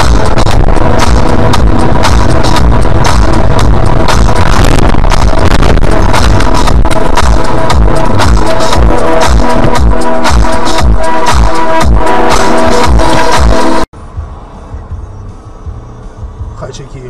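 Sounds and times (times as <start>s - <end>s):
electronic dance music: 0.0s - 13.9s.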